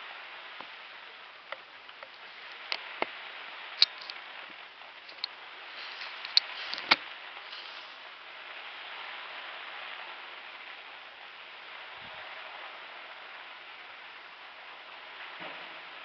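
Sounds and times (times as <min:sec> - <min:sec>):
steady hiss: 0:00.0 - 0:16.0
fireworks cracking: 0:04.9 - 0:08.2.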